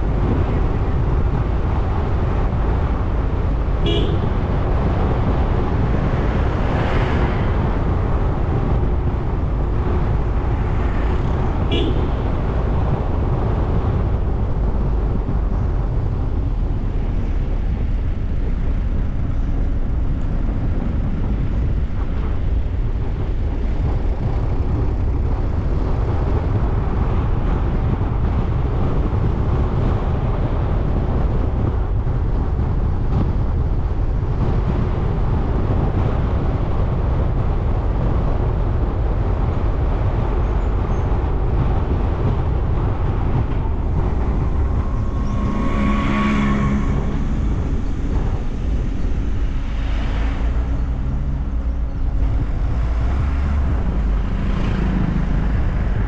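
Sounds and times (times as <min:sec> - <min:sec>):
car engine and tyre rumble: 0:00.0 - 0:56.0
vehicle horn toot: 0:03.8 - 0:04.4, 0:11.6 - 0:12.3, 0:44.2 - 0:48.4.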